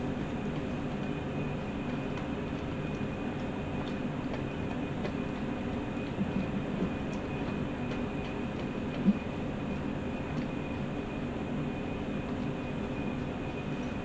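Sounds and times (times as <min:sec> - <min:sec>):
dog chewing and licking: 0:00.0 - 0:11.2.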